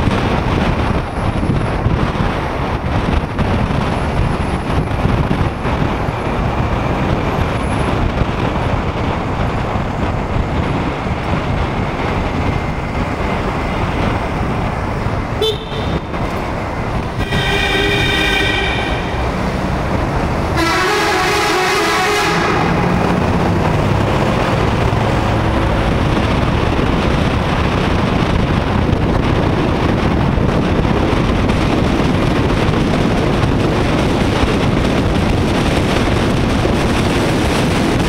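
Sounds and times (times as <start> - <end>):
wind and road rush: 0.0 - 38.0
vehicle horns honking: 15.4 - 16.2, 17.2 - 19.7, 20.5 - 22.9.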